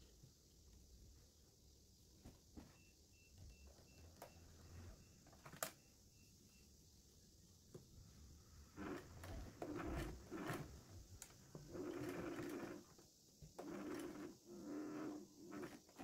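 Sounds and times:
sewing machine stitching: 0:08.6 - 0:13.0, 0:13.6 - 0:16.0.

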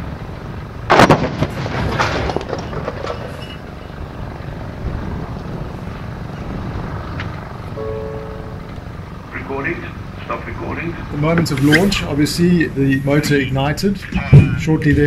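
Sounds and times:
rocket explosion bang: 0:00.9 - 0:03.0
explosion rumble: 0:00.9 - 0:07.8.

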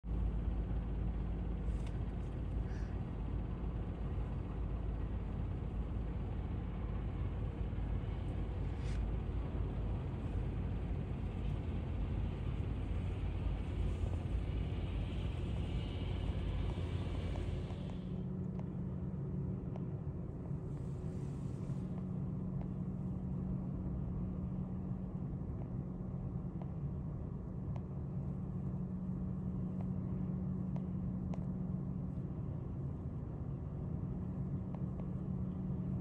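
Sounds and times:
jet engines rumbling: 0:00.1 - 0:25.6.

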